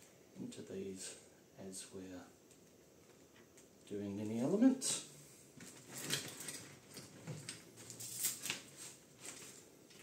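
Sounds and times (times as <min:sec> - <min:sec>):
soft rustling: 0:05.4 - 0:10.0.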